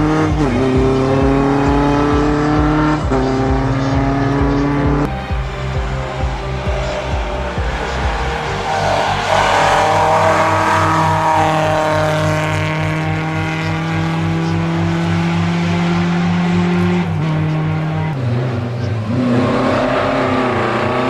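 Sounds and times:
rally car engine passing by: 0.0 - 21.0.

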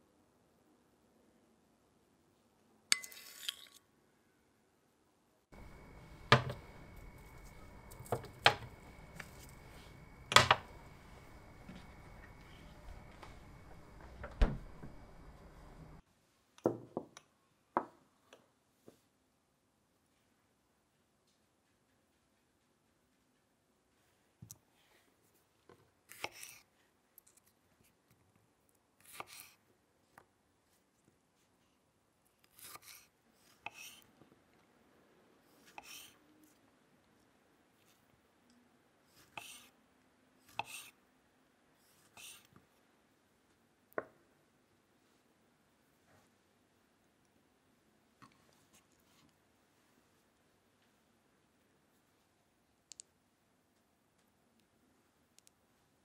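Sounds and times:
knife slicing berries: 5.6 - 14.0, 26.1 - 26.7, 29.0 - 29.6, 32.4 - 34.1, 35.6 - 36.2, 39.1 - 39.7, 40.4 - 41.0.

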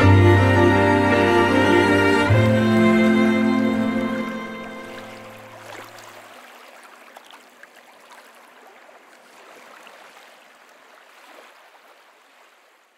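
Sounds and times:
low string music note: 0.0 - 5.6
small waves lapping: 0.0 - 12.9.

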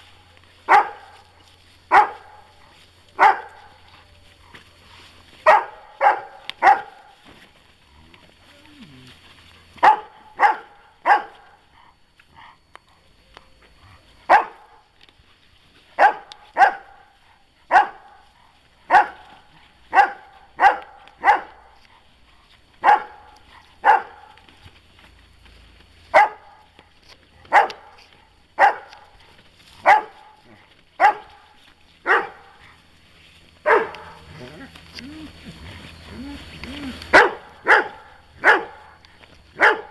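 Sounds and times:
dog barking: 0.7 - 1.3, 1.9 - 4.0, 5.4 - 7.1, 9.8 - 11.6, 14.3 - 14.9, 16.0 - 21.9, 22.8 - 24.5, 26.1 - 26.7, 27.4 - 29.2, 29.8 - 32.8, 33.6 - 34.6, 36.8 - 39.0, 39.6 - 39.9.

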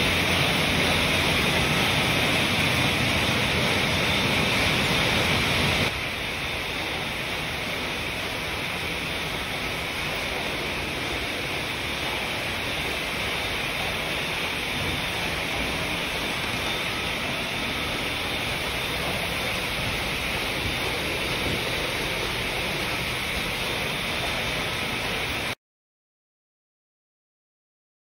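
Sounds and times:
steady hissing noise: 0.0 - 25.6.

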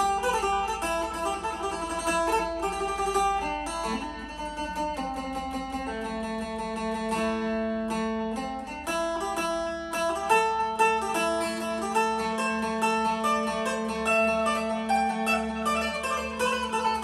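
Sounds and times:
plucked lute melody: 0.0 - 17.0.

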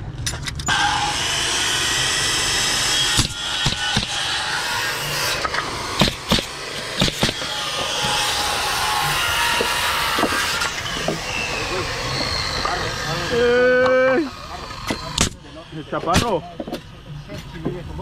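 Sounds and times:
nail gun firing into wood: 3.0 - 4.2, 5.4 - 8.3, 14.8 - 15.4, 16.0 - 16.8.

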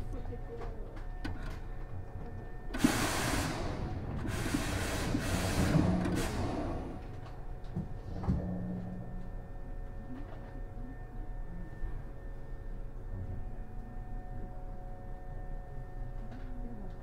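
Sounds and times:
compressed air hissing: 2.8 - 3.7.

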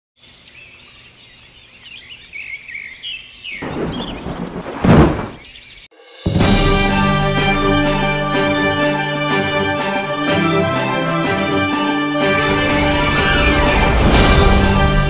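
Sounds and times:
birds chirping and trilling: 0.2 - 5.9, 12.2 - 14.8
music: 5.9 - 15.0.

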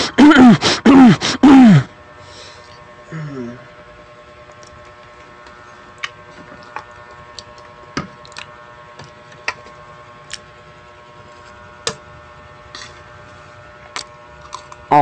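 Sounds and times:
low electrical hum: 0.0 - 15.0
eating clicks and crunches: 6.0 - 6.2, 8.2 - 8.5, 13.9 - 14.9.

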